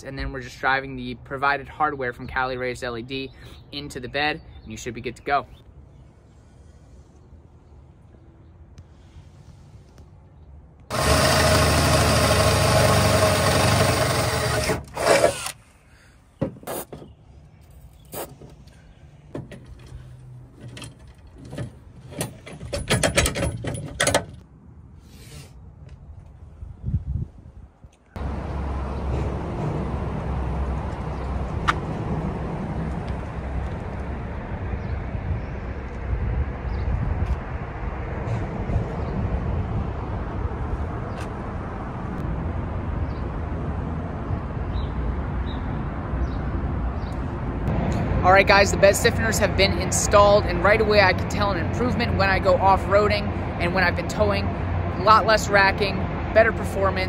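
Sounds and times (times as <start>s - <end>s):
metal bracket clicking and rattling: 19.4s - 24.4s.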